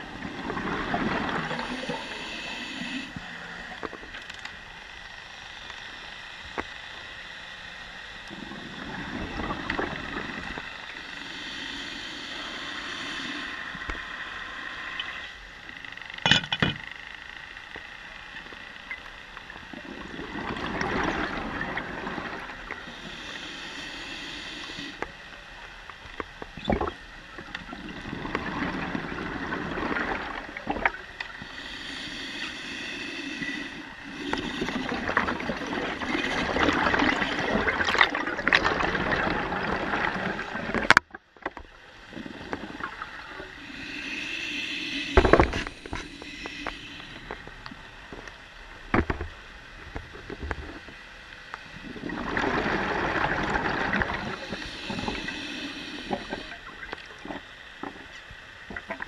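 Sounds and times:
diver's bubbles gurgling underwater: 0.0 - 2.2, 34.2 - 41.1, 51.8 - 57.4.

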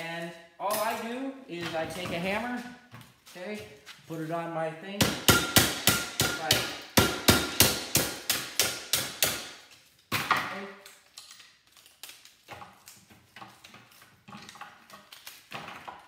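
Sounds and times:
hammer striking metal: 5.0 - 9.6
faint clicks of broken pieces: 10.8 - 13.1.

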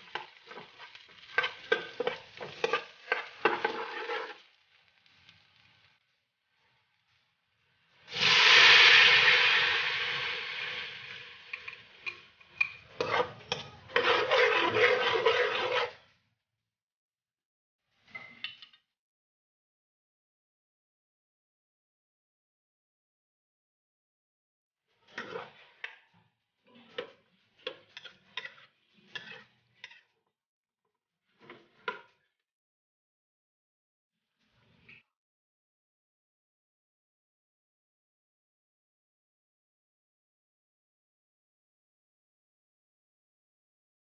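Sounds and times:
liquid sizzling in a wok: 0.0 - 16.1, 24.9 - 30.1
spatula scraping in a wok: 0.0 - 16.2, 24.8 - 30.3, 31.2 - 32.4, 34.2 - 35.1.

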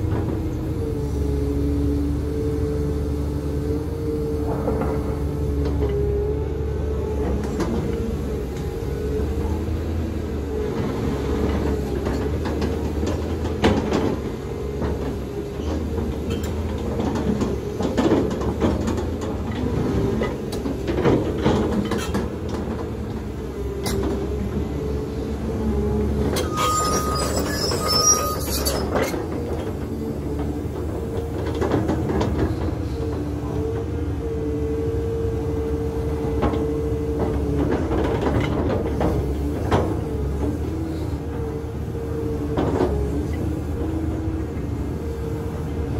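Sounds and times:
excavator diesel engine running: 0.0 - 45.9
short beeps: 26.5 - 28.5.

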